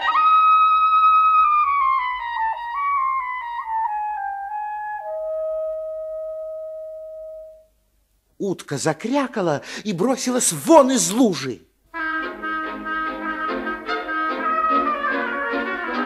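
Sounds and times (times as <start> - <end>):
solo woodwind melody: 11.9 - 16.0.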